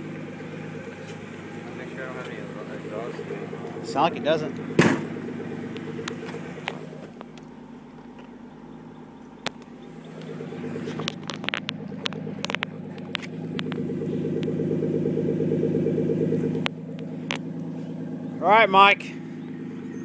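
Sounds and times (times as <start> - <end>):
car engine idling: 0.0 - 20.0
sharp clicks: 9.2 - 14.6.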